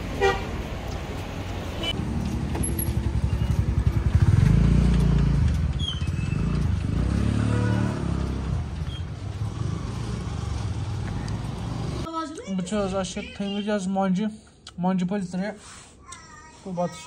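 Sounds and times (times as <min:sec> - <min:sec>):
vehicle engine driving: 0:00.0 - 0:12.1.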